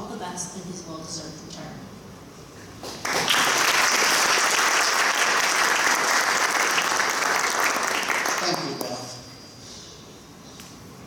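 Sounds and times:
crowd applauding: 3.0s - 9.1s.

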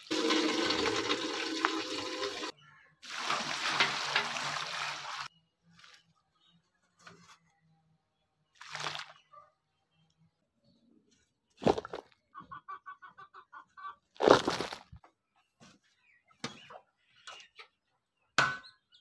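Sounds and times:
hen clucking: 12.0s - 14.1s.

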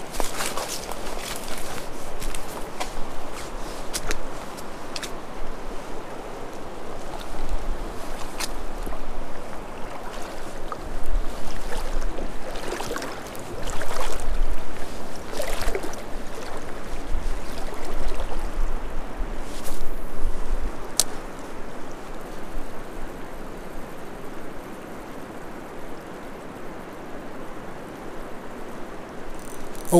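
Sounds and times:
river water rushing: 0.0s - 19.4s
wind buffeting microphone: 0.0s - 21.0s.

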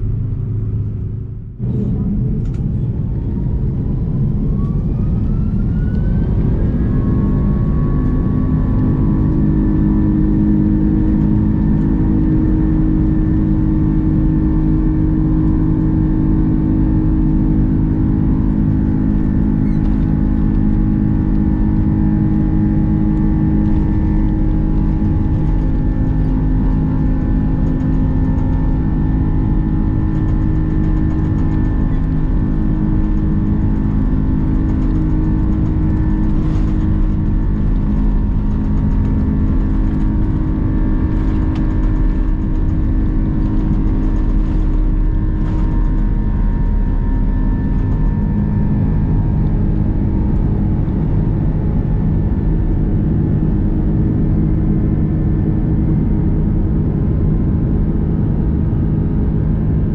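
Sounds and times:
jet engines hum and whine in cabin: 0.0s - 59.9s.

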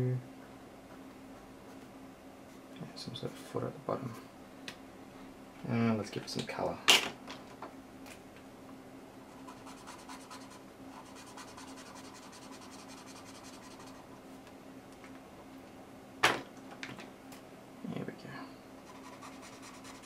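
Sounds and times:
marker scribbling on paper: 9.4s - 14.0s, 18.8s - 20.0s.

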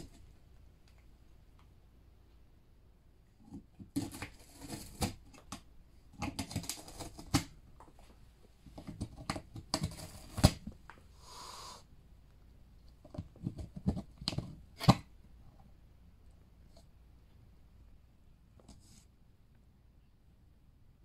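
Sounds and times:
cat gnawing cardboard: 3.4s - 7.8s, 8.6s - 10.9s, 13.0s - 15.1s
short hiss: 11.2s - 11.9s.

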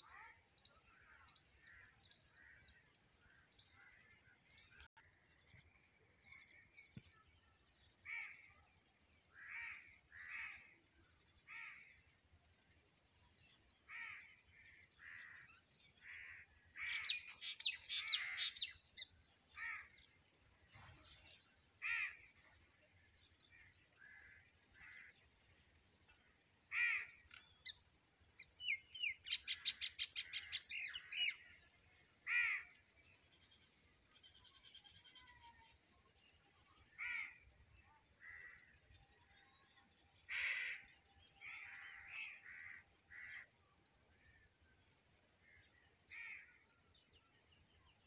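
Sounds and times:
crows cawing: 26.7s - 27.2s, 32.3s - 32.7s, 37.0s - 37.4s, 40.3s - 40.8s, 41.4s - 43.4s.

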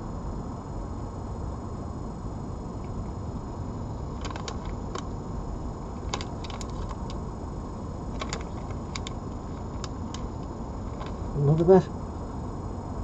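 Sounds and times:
low rumble and hiss: 0.0s - 13.0s
animal crunching dry pet food: 4.1s - 5.1s, 6.0s - 7.2s, 8.1s - 11.6s.

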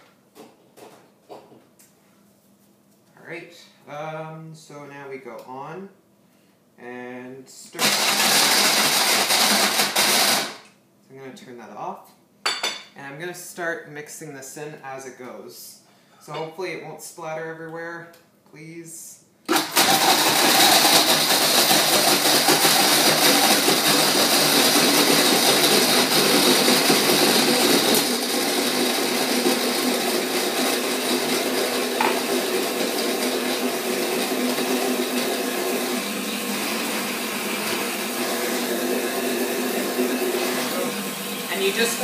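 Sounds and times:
countertop blender running: 7.8s - 10.6s, 19.5s - 42.0s.

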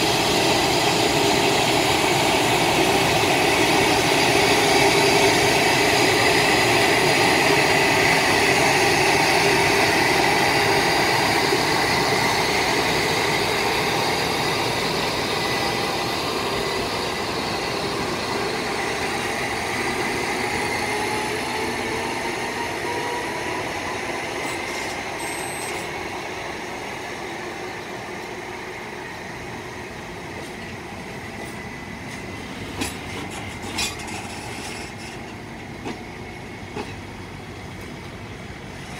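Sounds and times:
electric locomotive motor whine: 0.0s - 38.9s
wheels rumbling on rail: 0.0s - 38.9s.

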